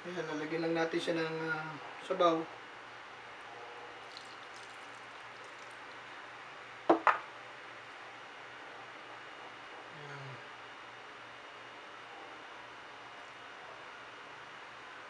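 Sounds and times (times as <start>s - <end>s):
broth splashing into a bowl: 4.0s - 6.0s.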